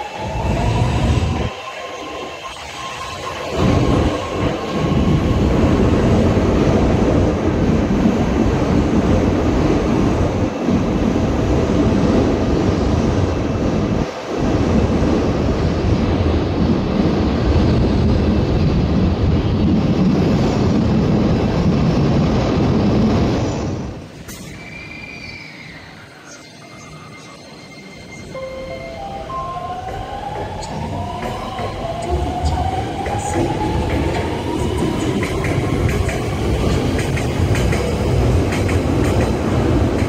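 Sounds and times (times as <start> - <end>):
train wheels rumbling: 0.0 - 26.2, 27.2 - 40.0.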